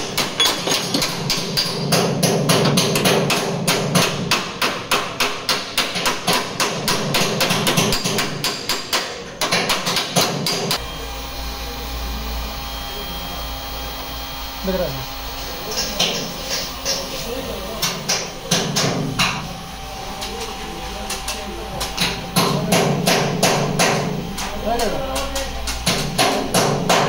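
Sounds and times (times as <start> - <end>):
hammer striking metal: 0.0 - 10.8, 17.8 - 19.5, 21.3 - 27.0
electric heat gun humming: 10.7 - 27.0.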